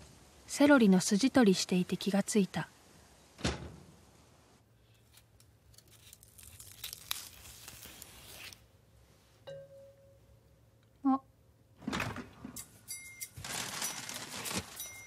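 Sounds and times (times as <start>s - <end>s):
knife stripping celery fibres: 4.9s - 8.6s.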